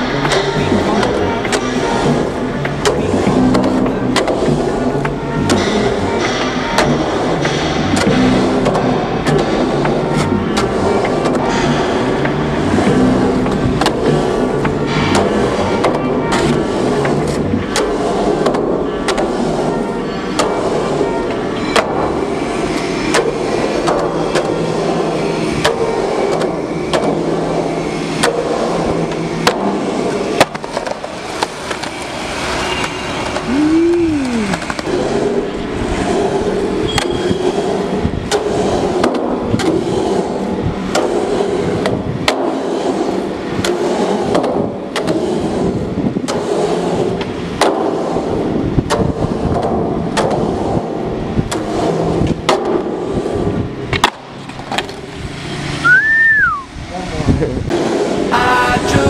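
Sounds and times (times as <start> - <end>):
skateboard wheels rolling on steel: 0.0 - 56.6.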